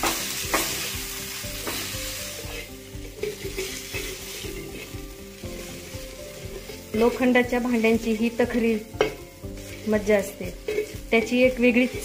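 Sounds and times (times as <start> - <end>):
pot knocking on griddle: 0.0 - 0.9, 1.6 - 2.0, 8.9 - 9.3
oil sizzling: 0.0 - 12.0
metal scraping on iron griddle: 1.6 - 12.0.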